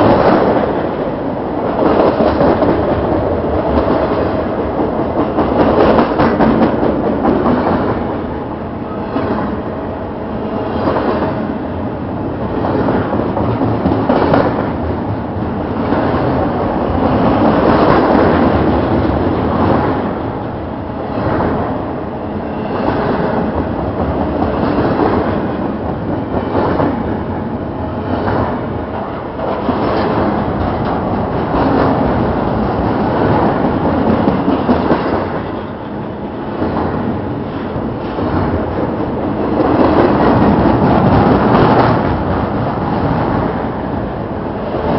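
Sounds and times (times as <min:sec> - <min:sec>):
train wheels rolling on rail: 0:00.0 - 0:44.9
clicking over rail joints: 0:28.1 - 0:35.7.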